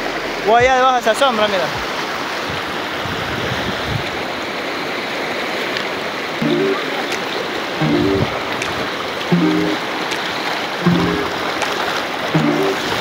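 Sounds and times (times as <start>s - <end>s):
river rushing over stones: 0.0s - 13.0s
low musical notes: 6.4s - 8.6s, 9.3s - 10.1s, 10.8s - 11.5s, 12.3s - 13.0s.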